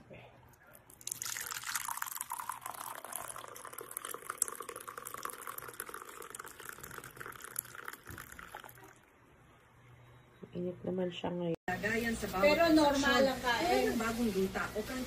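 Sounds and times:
coffee pouring into a mug: 0:00.9 - 0:09.1.

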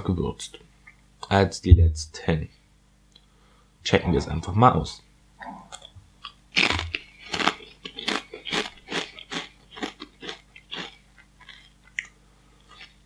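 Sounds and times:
person crunching potato chip: 0:06.2 - 0:13.0.

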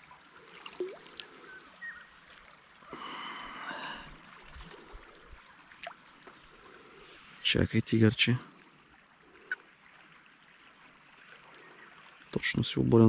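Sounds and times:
water splashing and dripping: 0:00.0 - 0:06.8.

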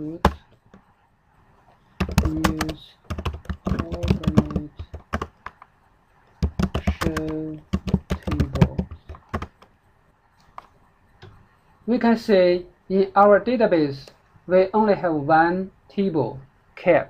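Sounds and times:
keyboard typing: 0:02.0 - 0:05.7, 0:06.3 - 0:09.8.

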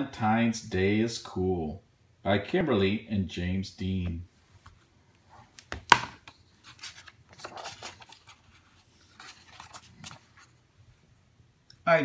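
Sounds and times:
paper and cover rustling: 0:05.3 - 0:10.6.

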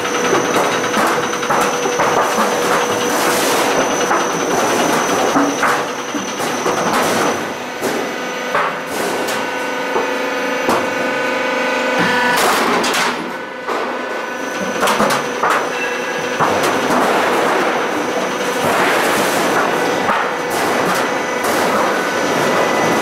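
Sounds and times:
roll forming machine whining: 0:00.0 - 0:23.0.

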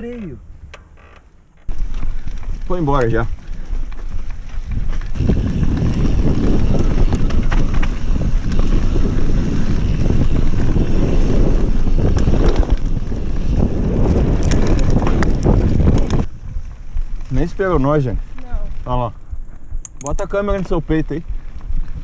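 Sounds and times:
bike clicks and knocks: 0:00.6 - 0:16.3, 0:19.8 - 0:20.8
tyre rumble over dirt: 0:01.7 - 0:19.0
wind buffeting microphone: 0:01.7 - 0:22.0.

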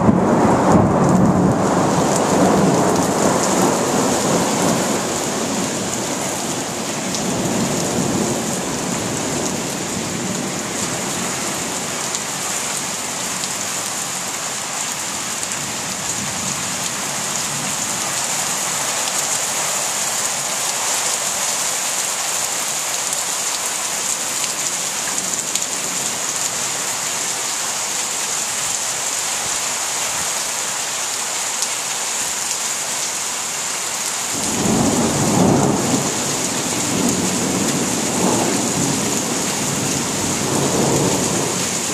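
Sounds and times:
thunder rumbling: 0:00.0 - 0:11.2, 0:34.4 - 0:41.9
rain pouring: 0:00.0 - 0:41.9.

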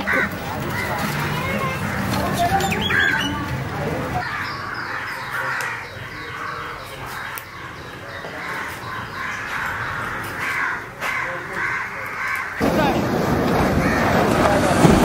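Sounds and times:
birds calling: 0:00.0 - 0:14.5.

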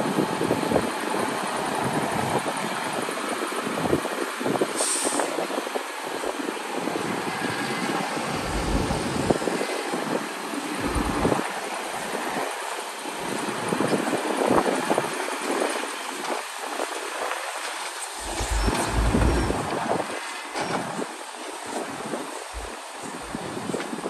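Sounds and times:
wind buffeting microphone: 0:00.0 - 0:12.6, 0:13.2 - 0:24.0
diesel earthmoving machinery running: 0:06.0 - 0:24.0.

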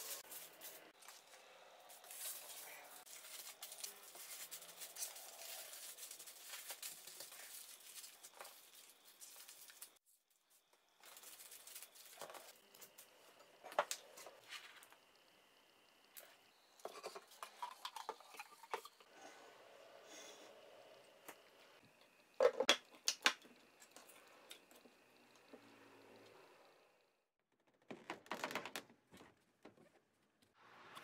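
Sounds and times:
aluminium foil crinkling: 0:00.0 - 0:13.0.

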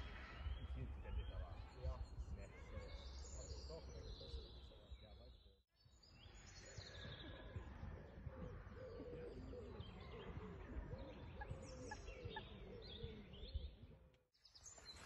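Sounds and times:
low arched bird calls: 0:08.4 - 0:14.0.

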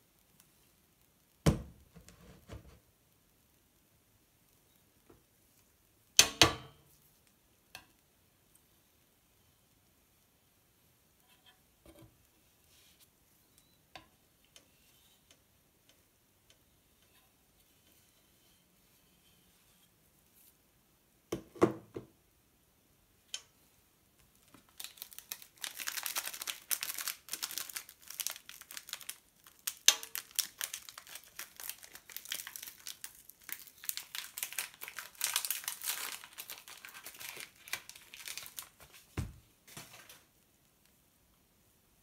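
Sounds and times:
plastic wrapper crinkling: 0:24.3 - 0:39.2.

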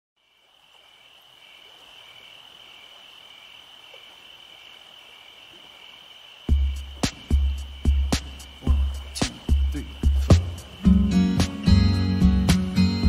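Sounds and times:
insects trilling: 0:00.2 - 0:13.0
lower pulsing insect trill: 0:00.2 - 0:13.0
music with heavy bass beat: 0:06.5 - 0:13.0.

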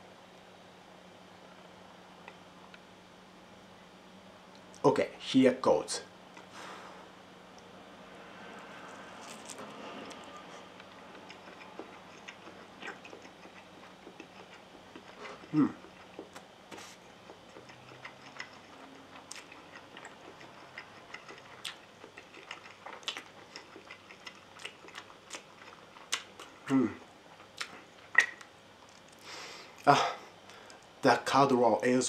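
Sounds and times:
person chewing noodles: 0:08.6 - 0:29.4
loud mouth sound: 0:15.3 - 0:15.8.

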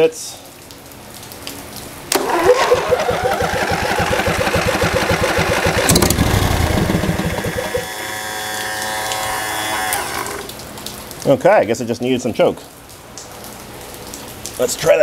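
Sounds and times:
engine cranking and starting: 0:02.1 - 0:10.5.

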